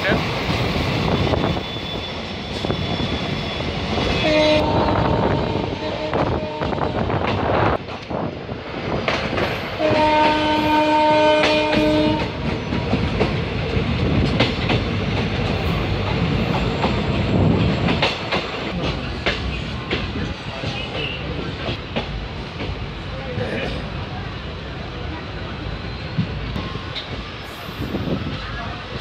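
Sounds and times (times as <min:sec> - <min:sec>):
train horn blast: 0:04.1 - 0:07.1, 0:09.8 - 0:12.5
train wheels clicking over rail joints: 0:07.1 - 0:24.0.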